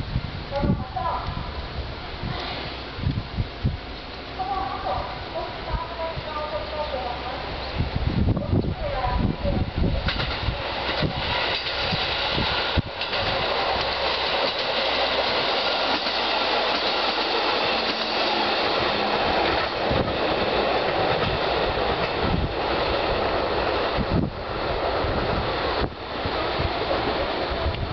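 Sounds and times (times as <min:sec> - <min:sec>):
train wheels on rails: 0:00.0 - 0:27.9
wheels clicking over rail joints: 0:08.6 - 0:26.0.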